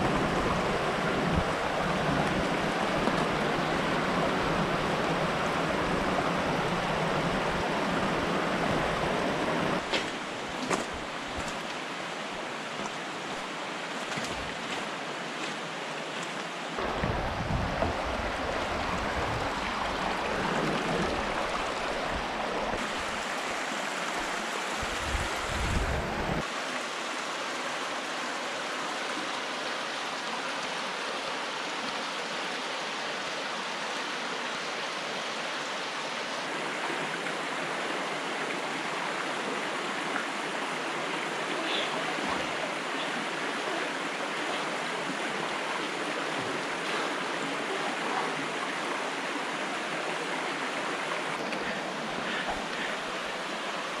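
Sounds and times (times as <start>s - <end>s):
flowing water rushing: 0.0s - 54.0s
wind buffeting microphone: 16.8s - 22.8s, 24.8s - 26.4s.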